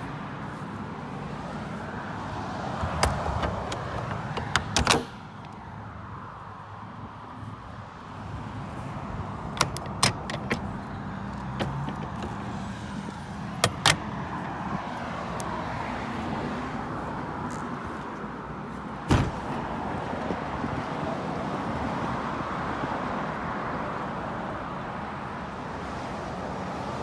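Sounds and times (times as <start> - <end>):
outdoor background noise: 0.0 - 27.0
metal latches clicking and clanking: 2.8 - 5.6, 9.4 - 14.5
heavy deep thud: 19.1 - 19.5.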